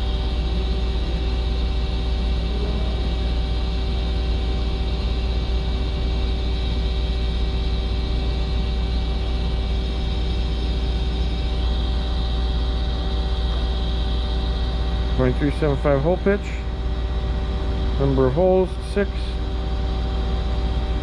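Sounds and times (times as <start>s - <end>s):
constant humming tones: 0.0s - 21.0s
machine-shop machinery drone: 0.0s - 21.0s.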